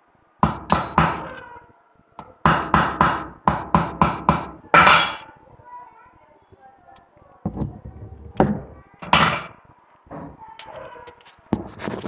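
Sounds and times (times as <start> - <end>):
hammer striking metal: 0.4 - 1.4, 2.4 - 5.3, 9.0 - 9.6.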